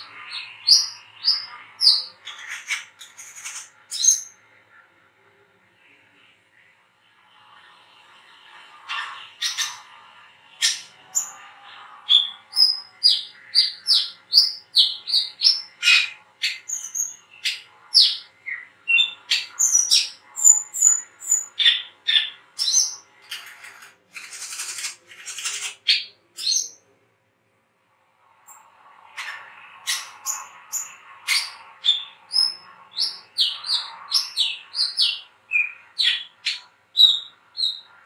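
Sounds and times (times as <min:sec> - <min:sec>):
bird chirping: 0:00.0 - 0:04.4, 0:08.9 - 0:09.9, 0:10.5 - 0:26.8, 0:29.2 - 0:38.0.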